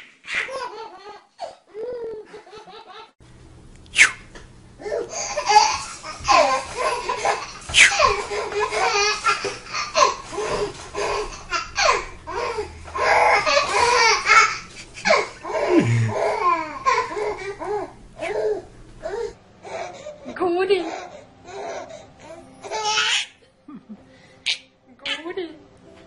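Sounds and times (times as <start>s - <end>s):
baby laughing: 0.3s - 3.2s, 4.8s - 18.7s, 22.6s - 23.4s.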